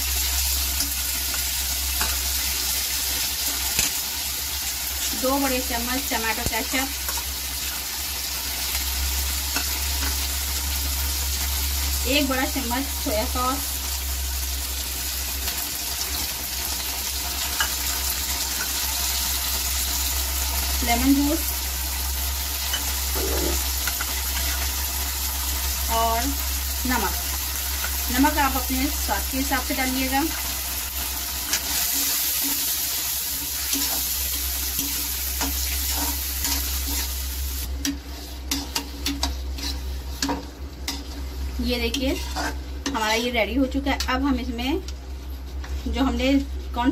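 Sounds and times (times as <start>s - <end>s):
vegetables sizzling in pan: 0.0s - 46.9s
metal spoon stirring and scraping pan: 0.5s - 4.1s, 27.8s - 44.1s.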